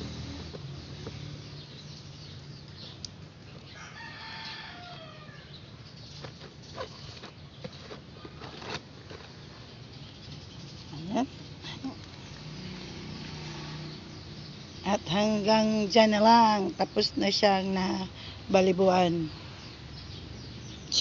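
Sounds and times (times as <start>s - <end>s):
rooster crowing: 3.7s - 5.6s.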